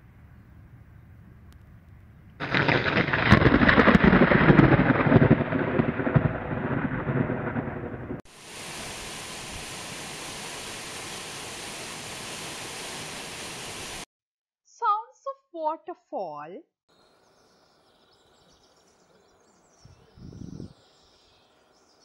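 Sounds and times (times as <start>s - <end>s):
thunder clap and rumble: 2.4s - 8.3s
waterfall rushing hiss: 8.3s - 14.1s.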